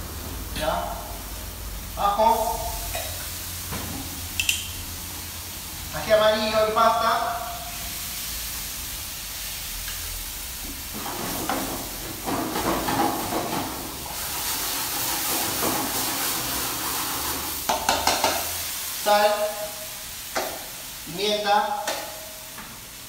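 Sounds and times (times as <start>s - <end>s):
food sizzling in a pan: 0.0s - 23.0s.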